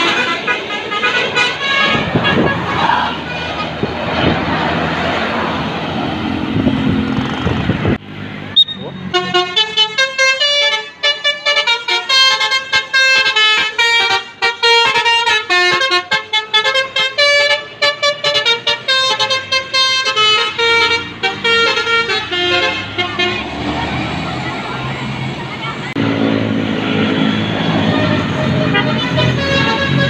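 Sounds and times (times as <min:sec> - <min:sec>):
bus horn playing fast melody: 0:00.0 - 0:03.8, 0:08.6 - 0:23.5, 0:27.8 - 0:30.0.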